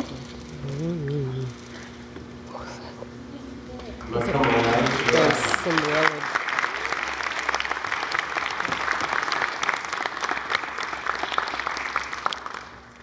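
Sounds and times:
crowd applauding: 4.2 - 13.0.

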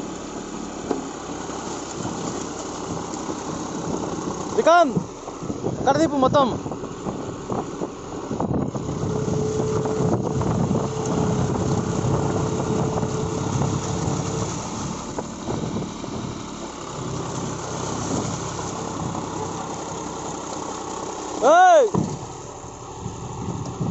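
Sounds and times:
thin steady whine: 0.0 - 23.9
tractor diesel engine under load: 0.0 - 23.9
wheels churning mud and water: 0.0 - 23.9.

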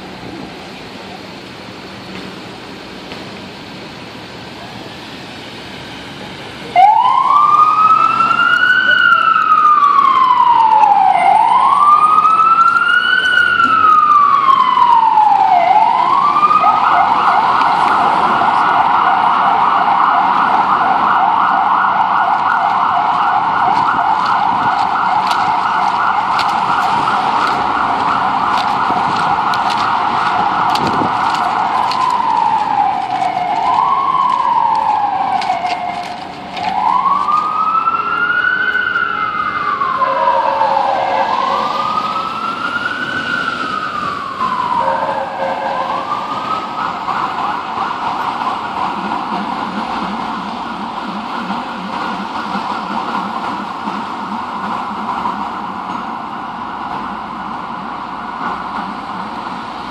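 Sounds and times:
ambulance siren wailing and yelping: 6.6 - 49.5.

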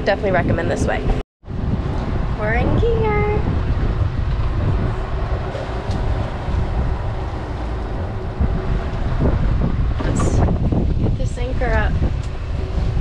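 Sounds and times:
wind buffeting microphone: 0.0 - 13.0
boat engine idling: 4.0 - 10.5.

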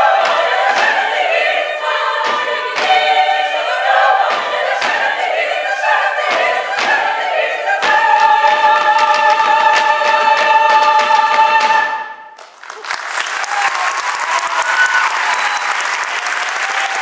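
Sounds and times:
women's choir singing: 0.0 - 12.2.

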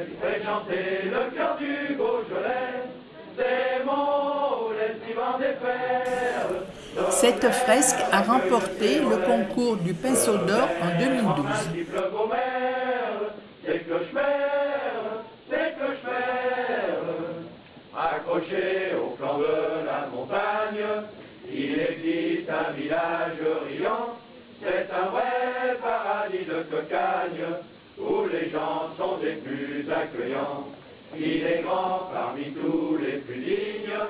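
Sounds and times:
men singing a chant-like song: 6.1 - 12.6.

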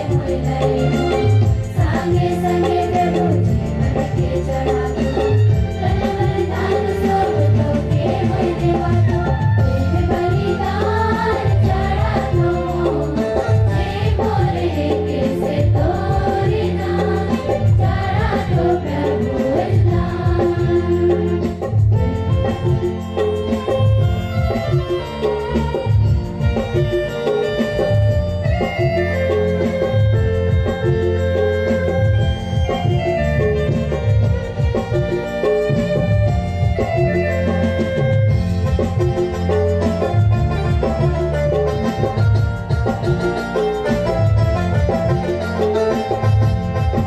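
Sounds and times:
choir of women singing a hymn: 0.0 - 21.8
live band with steady beat: 0.0 - 47.0.

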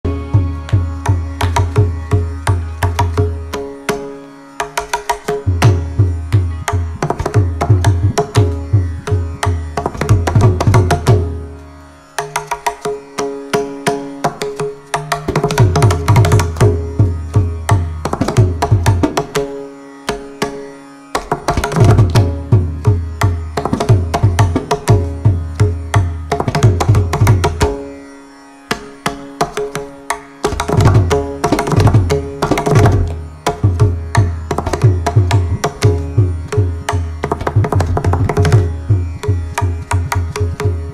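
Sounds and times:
mridangam drum solo: 0.0 - 3.6, 4.6 - 11.4, 12.2 - 19.5, 21.2 - 27.8, 29.1 - 40.9.

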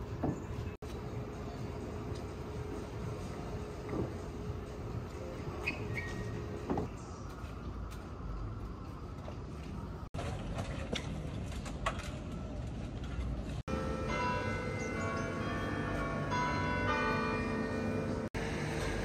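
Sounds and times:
bells ringing: 13.7 - 18.7.

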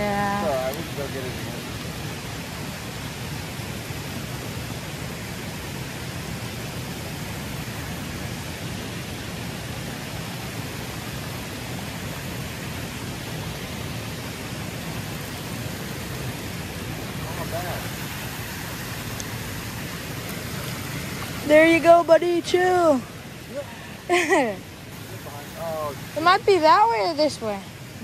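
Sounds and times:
water rushing over weir: 0.0 - 28.0.

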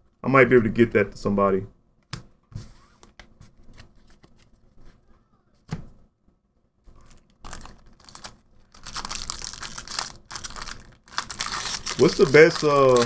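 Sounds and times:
foil wrapper crinkling and tearing: 7.0 - 13.0.

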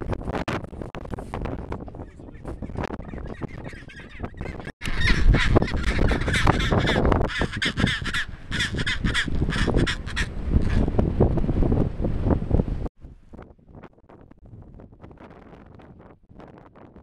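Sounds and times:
penguin braying call: 2.6 - 10.8.

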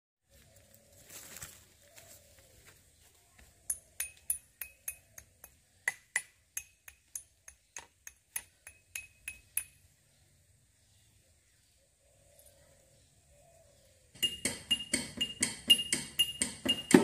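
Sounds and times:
metal rod tapping metal: 3.7 - 9.9, 14.2 - 17.0.

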